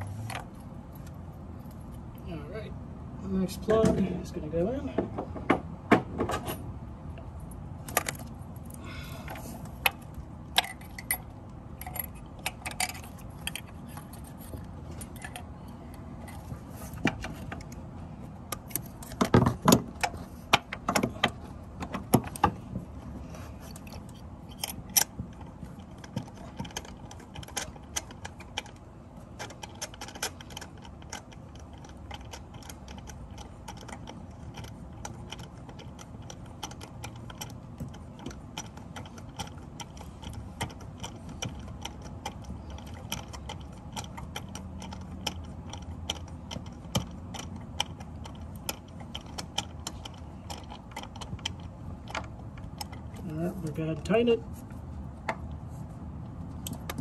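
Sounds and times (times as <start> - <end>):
metallic clinks and rattles: 7.4 - 17.8.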